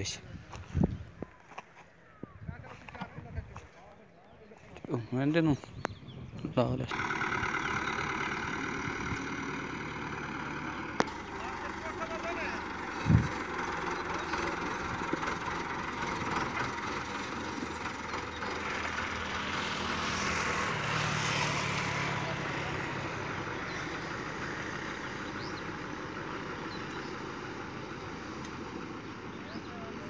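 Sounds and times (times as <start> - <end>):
tractor diesel engine running: 5.9 - 30.0.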